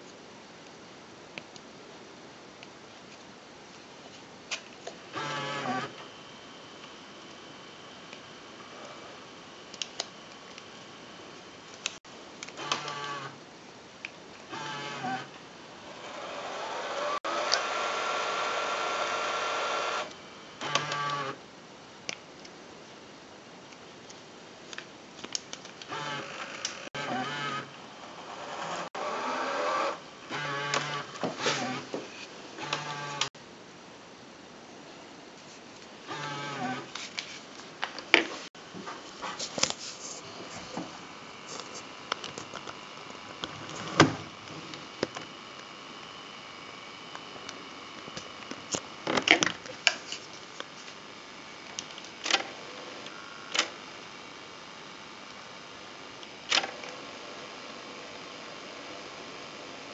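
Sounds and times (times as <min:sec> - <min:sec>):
camcorder tape winding whir: 0:04.9 - 0:07.4, 0:08.0 - 0:13.4, 0:14.4 - 0:21.4, 0:24.8 - 0:32.0, 0:32.6 - 0:33.3, 0:36.1 - 0:37.2, 0:40.2 - 0:59.9
camcorder motor whir: 0:05.1 - 0:11.2, 0:12.4 - 0:13.4, 0:14.5 - 0:21.4, 0:25.6 - 0:32.0, 0:32.6 - 0:33.3, 0:36.1 - 0:37.0, 0:40.4 - 0:49.4, 0:50.5 - 0:59.9.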